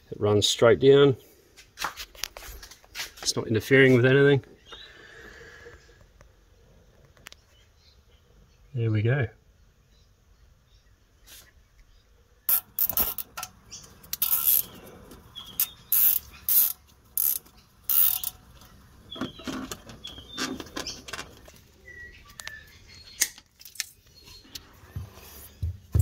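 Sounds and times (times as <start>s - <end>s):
cable tie ratcheting clicks: 12.5s - 14.8s, 15.5s - 18.7s.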